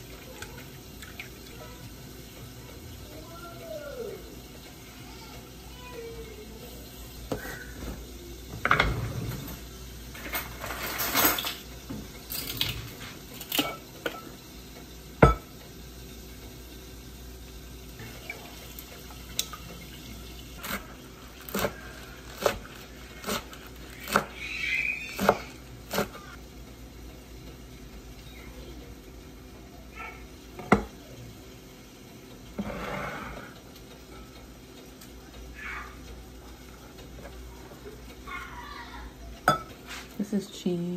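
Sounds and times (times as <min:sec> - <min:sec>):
whisk clinking against glass: 0:39.4 - 0:39.7.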